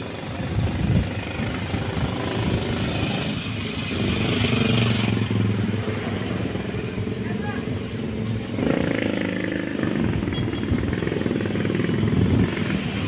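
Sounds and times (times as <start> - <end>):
vehicle engines running: 0.0 - 13.0.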